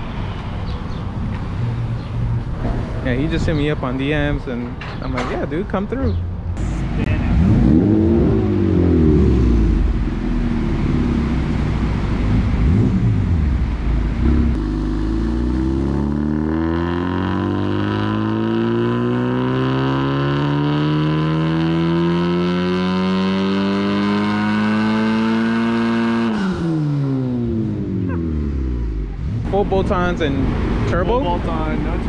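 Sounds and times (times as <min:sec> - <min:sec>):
car engine revving on a dyno: 0:06.6 - 0:11.2, 0:12.3 - 0:13.6, 0:14.2 - 0:27.9.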